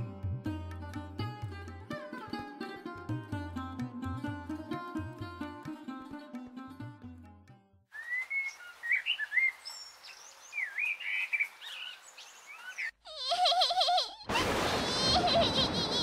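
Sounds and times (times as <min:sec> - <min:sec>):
plucked-string music: 0:00.0 - 0:07.8
songbirds chirping: 0:08.0 - 0:13.0.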